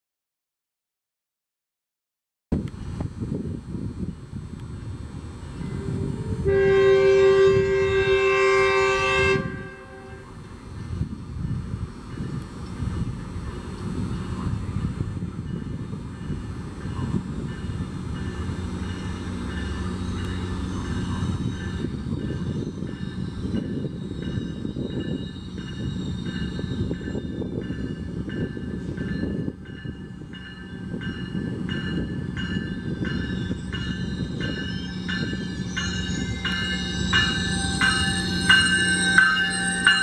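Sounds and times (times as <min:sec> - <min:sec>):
train rumbling: 0:02.6 - 0:40.0
repeating ringing bell: 0:20.2 - 0:40.0.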